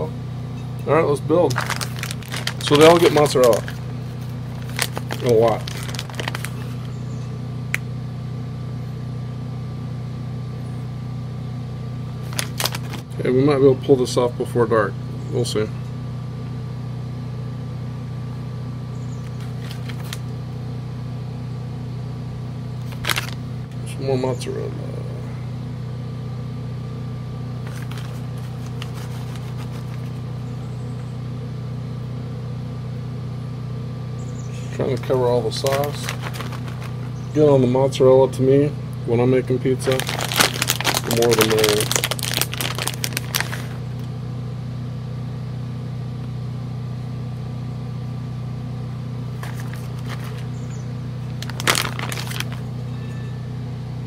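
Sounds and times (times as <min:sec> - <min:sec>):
generator engine humming: 0:00.0 - 0:54.0
plastic bag crinkling: 0:01.4 - 0:06.9, 0:12.2 - 0:13.2, 0:19.3 - 0:20.2, 0:22.8 - 0:23.4, 0:27.6 - 0:30.2, 0:35.0 - 0:37.2, 0:39.8 - 0:43.8, 0:49.4 - 0:50.5, 0:51.3 - 0:52.7.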